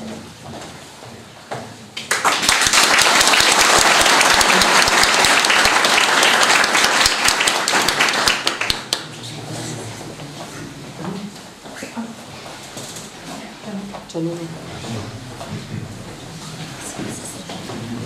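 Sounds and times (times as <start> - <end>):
audience applauding: 2.1 - 9.1.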